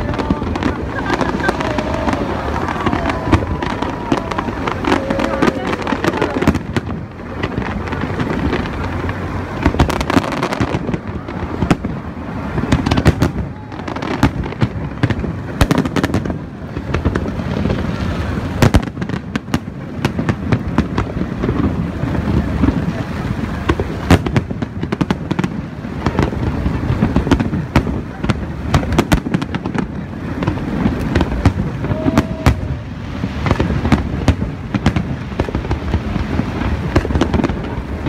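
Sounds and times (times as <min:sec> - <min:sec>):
fireworks bangs and crackles: 0:00.0 - 0:38.0.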